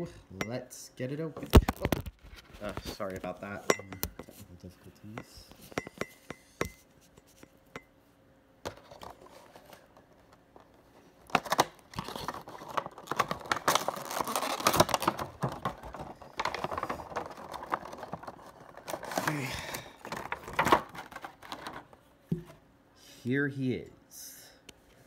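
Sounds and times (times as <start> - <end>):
plastic packaging crinkling: 1.4 - 3.2, 11.2 - 21.9.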